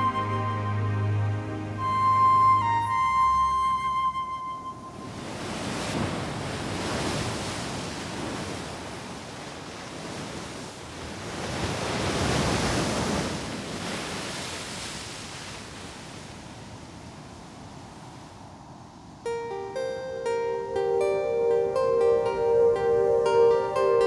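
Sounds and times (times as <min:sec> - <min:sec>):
strong wind gusting: 0:04.6 - 0:19.2.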